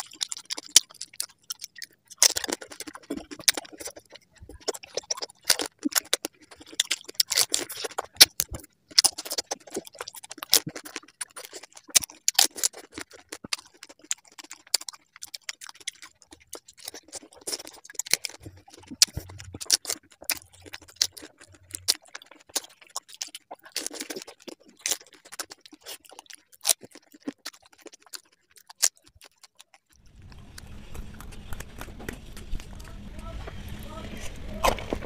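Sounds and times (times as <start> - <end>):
crunching and chewing food: 0.0 - 35.0
steady hiss with low hum: 30.0 - 35.0.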